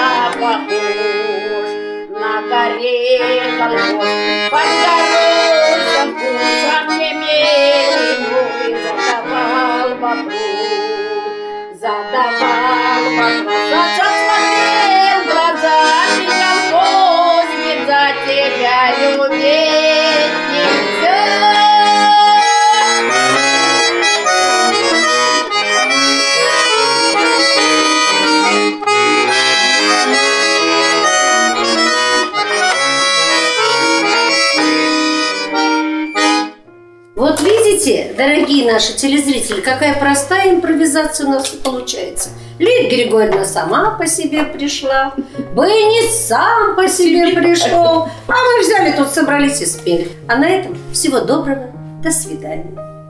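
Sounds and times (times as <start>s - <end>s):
woman singing: 0.0s - 23.9s, 37.3s - 51.7s
button accordion folk tune: 0.0s - 51.9s.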